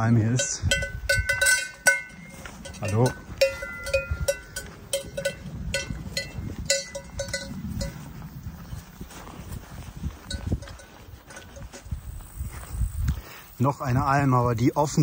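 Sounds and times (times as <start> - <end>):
cowbell clanking: 0.0 - 8.3, 10.2 - 12.0.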